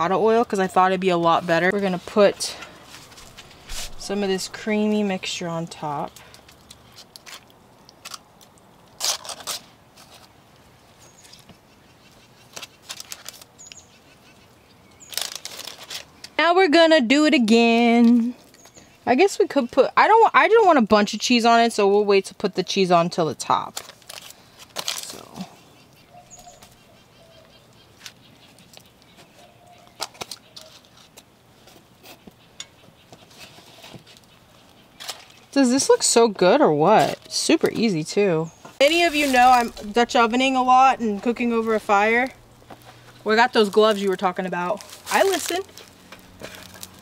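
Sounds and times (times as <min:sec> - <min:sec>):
parchment paper crinkling: 0:01.4 - 0:10.4, 0:12.4 - 0:13.8, 0:15.0 - 0:16.4, 0:23.6 - 0:25.4, 0:38.8 - 0:47.0
faint bird chirping: 0:11.0 - 0:12.5, 0:13.6 - 0:15.3, 0:18.3 - 0:19.2, 0:25.2 - 0:30.9.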